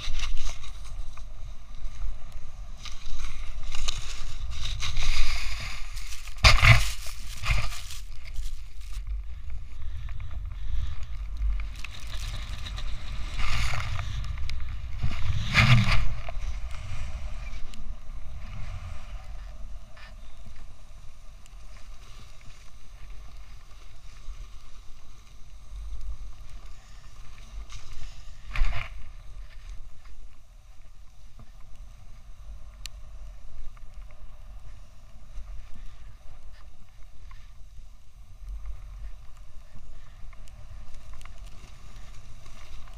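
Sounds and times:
snow hissing under skis: 0.0s - 9.0s, 11.7s - 30.0s
wind rumbling on microphone: 0.0s - 42.9s.

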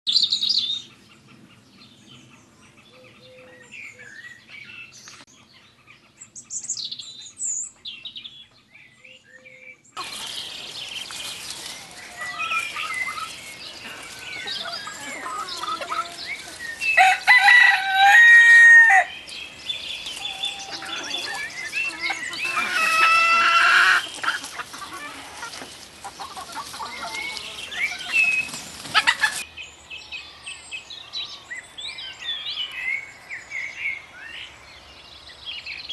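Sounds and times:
songbird chirps: 0.1s - 35.9s
chickens clucking: 10.0s - 29.5s
rooster crowing: 14.1s - 19.2s, 20.2s - 24.0s.

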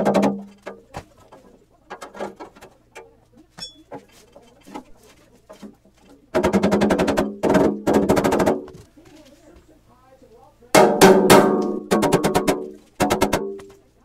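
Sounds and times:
metallic rattle with ringing: 3.6s - 4.7s
sheet metal knocking on bench: 10.8s - 13.7s.

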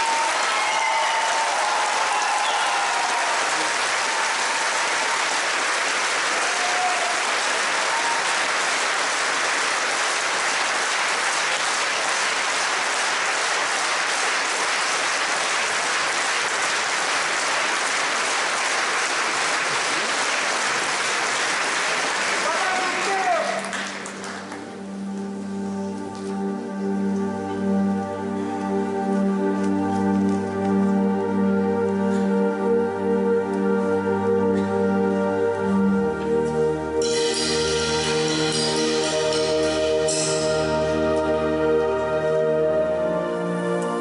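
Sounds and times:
audience applauding: 0.0s - 24.8s.

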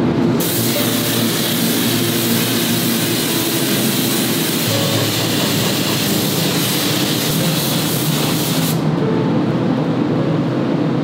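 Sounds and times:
spray gun hissing: 0.4s - 8.8s.

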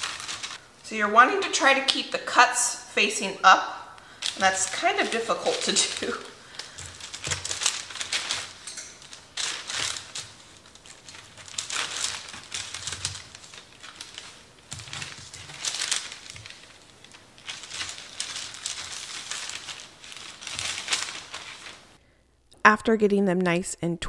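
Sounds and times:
rustling and crinkling: 0.0s - 0.6s, 4.2s - 22.0s.

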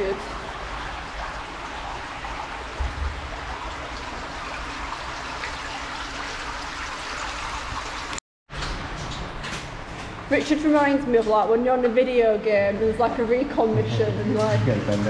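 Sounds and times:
water rushing through culvert: 0.0s - 8.2s.

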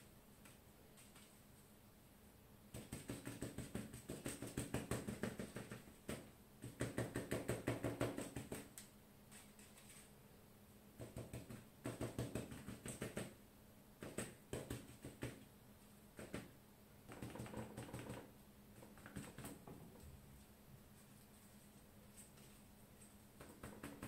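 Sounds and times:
foil tapping against paper: 2.7s - 9.5s, 11.0s - 13.4s, 14.0s - 15.4s, 16.2s - 16.5s, 17.1s - 19.8s, 23.4s - 24.0s.

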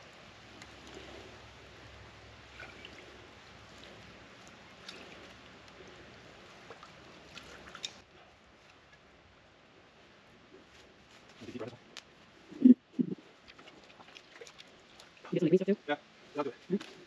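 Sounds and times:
water trickling and dripping: 0.0s - 9.2s, 13.0s - 17.0s.

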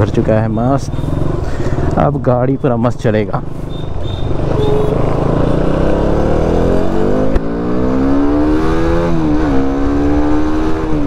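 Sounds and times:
motorcycle engine accelerating: 3.8s - 11.0s.

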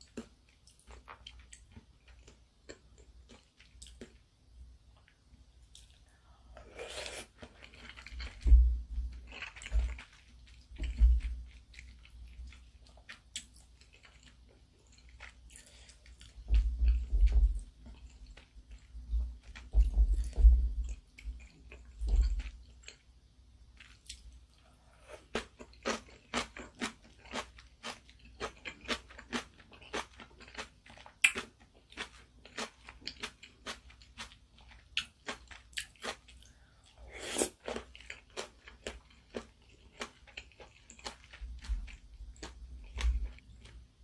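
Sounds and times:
low thumps: 19.7s - 20.9s.

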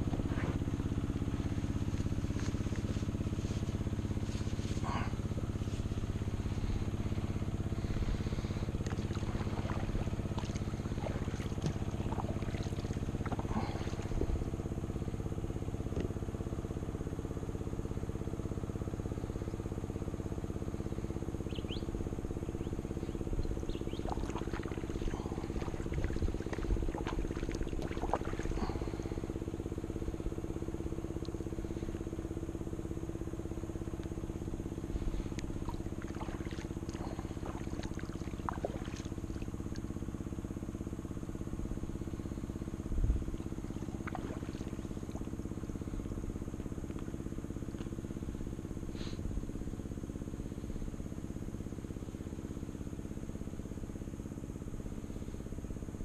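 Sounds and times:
paddle splashes and drips: 0.0s - 16.1s, 22.9s - 30.1s, 33.9s - 40.6s, 43.2s - 47.1s
low droning hum: 0.0s - 56.0s.

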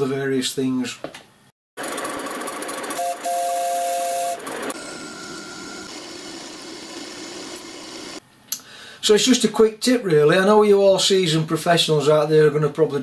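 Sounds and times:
two-note steam whistle: 2.9s - 5.9s
steam whistle hiss: 3.0s - 5.9s.

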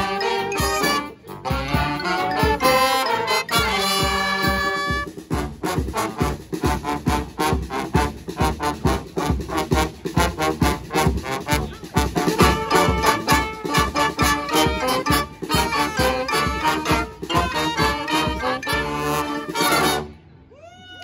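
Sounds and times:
brass band playing: 0.0s - 20.2s
quick drum beat: 4.0s - 19.0s.

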